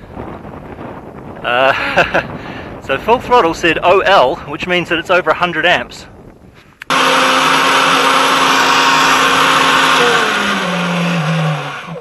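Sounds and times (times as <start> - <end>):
boat motor whining: 6.8 - 12.0.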